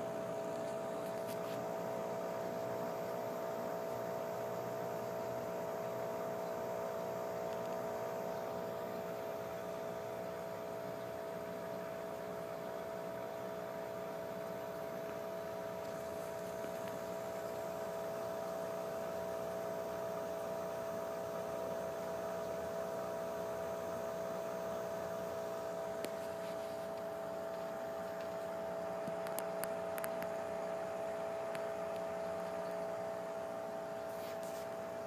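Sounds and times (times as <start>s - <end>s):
electrical hum: 0.0s - 35.0s
faint ticks: 7.4s - 8.6s, 26.0s - 30.4s, 31.4s - 32.9s.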